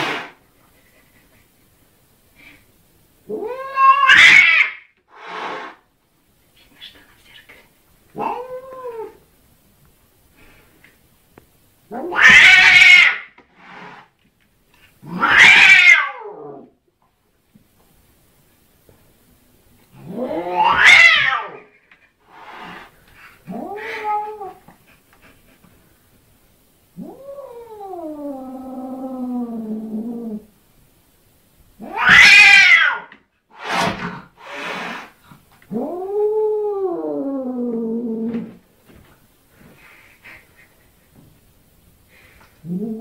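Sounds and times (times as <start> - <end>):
cat hissing: 0.0 - 0.4, 3.3 - 5.8, 11.9 - 14.2, 15.0 - 16.2, 20.0 - 25.6, 31.8 - 36.2
cat yowling: 3.3 - 4.9, 8.2 - 9.2, 11.9 - 13.3, 15.1 - 16.4, 20.1 - 21.6, 31.8 - 33.1.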